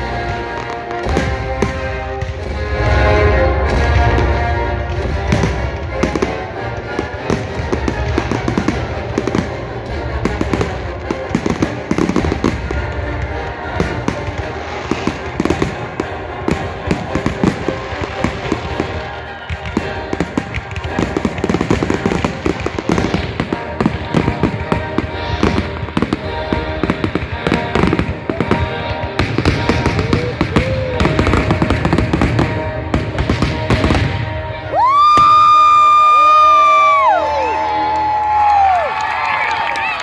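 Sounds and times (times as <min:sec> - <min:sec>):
fireworks bangs and crackling: 0:00.0 - 0:40.0
music playing: 0:00.0 - 0:40.0.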